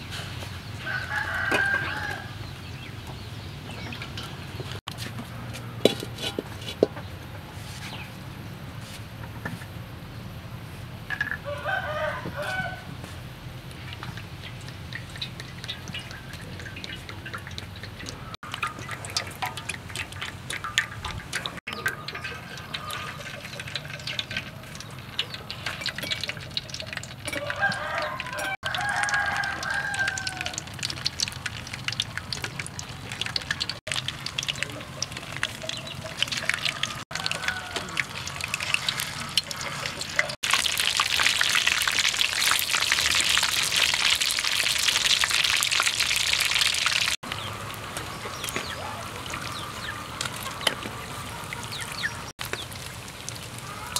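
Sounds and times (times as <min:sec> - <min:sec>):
oil frying in a wok: 0:00.0 - 0:07.2, 0:07.9 - 0:53.9
rooster crowing: 0:00.8 - 0:02.4, 0:11.4 - 0:13.0, 0:27.3 - 0:30.7, 0:36.4 - 0:39.6.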